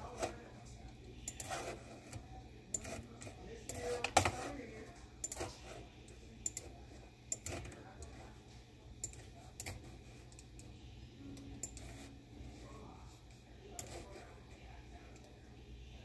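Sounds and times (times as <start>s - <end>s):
computer mouse clicks: 1.2s - 1.6s, 5.2s - 5.5s, 6.4s - 6.7s, 9.0s - 10.7s.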